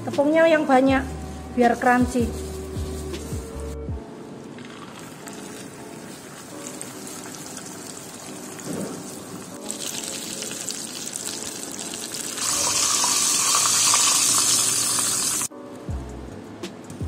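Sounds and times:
background music: 0.0s - 17.0s
fish frying in oil: 5.2s - 15.5s.

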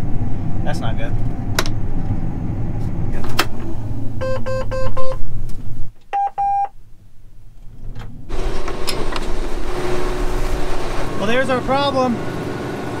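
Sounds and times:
steady rushing noise: 0.0s - 4.2s, 8.2s - 13.0s
combine engine hum: 0.0s - 6.0s, 6.8s - 13.0s
monitor alarm beeping: 4.2s - 5.2s, 6.1s - 6.7s.

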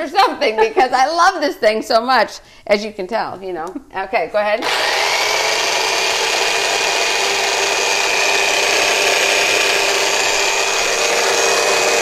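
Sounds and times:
blender running: 4.6s - 12.0s.

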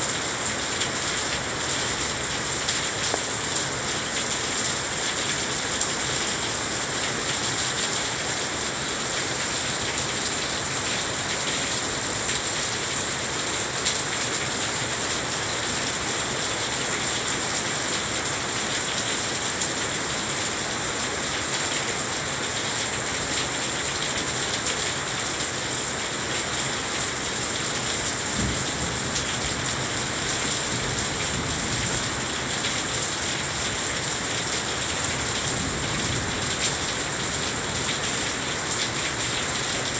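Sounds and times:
heavy rain on glass and deck: 0.0s - 39.9s.

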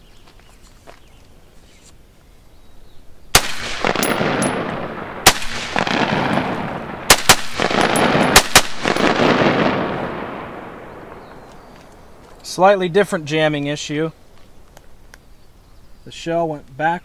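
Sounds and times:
gunshots with rolling echo: 3.3s - 12.2s.

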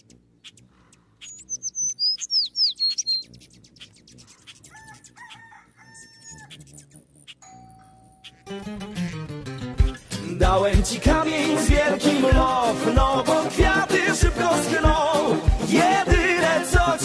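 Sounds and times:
high whistled birdsong: 0.0s - 8.6s
rooster crowing: 4.7s - 6.6s.

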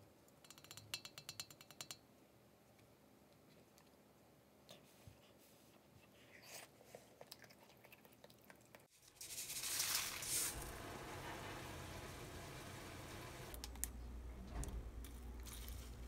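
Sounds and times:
salt grains pattering: 9.0s - 13.6s, 15.1s - 16.0s
low background hum: 10.0s - 16.0s.

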